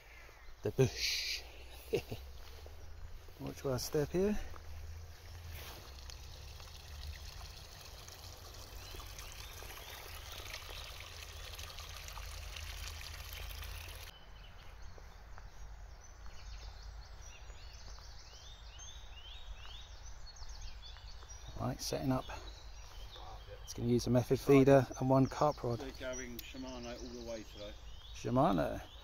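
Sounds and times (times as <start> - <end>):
open-air background: 0.0 - 29.0
stream trickling: 1.9 - 14.1.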